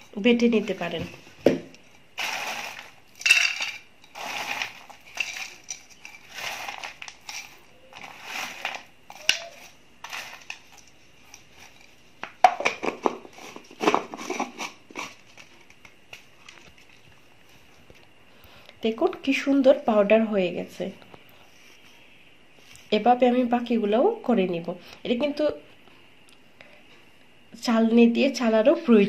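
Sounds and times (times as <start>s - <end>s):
dry pieces rattling into plastic jar: 2.2s - 11.8s
dry chips rustling by hand: 2.2s - 12.1s.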